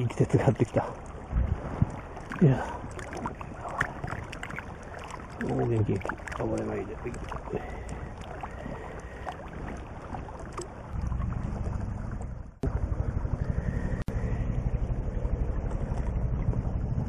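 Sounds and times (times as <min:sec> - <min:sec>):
rushing stream water: 0:00.0 - 0:11.5
wind buffeting microphone: 0:00.0 - 0:17.0.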